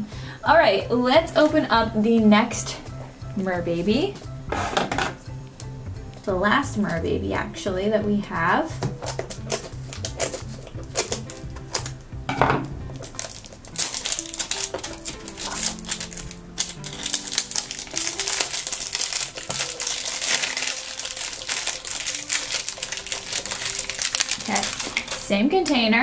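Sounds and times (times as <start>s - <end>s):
scissors cutting plastic: 8.8s - 12.0s, 13.0s - 25.9s
plastic wrapper crinkling: 9.0s - 12.0s, 12.9s - 26.0s.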